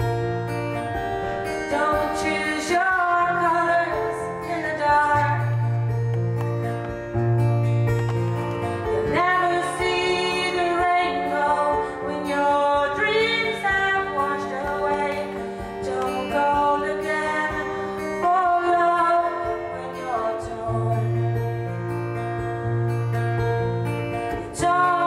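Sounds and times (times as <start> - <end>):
strummed acoustic guitar: 0.0 - 25.0
woman singing: 1.5 - 5.8, 8.8 - 21.5, 24.3 - 25.0.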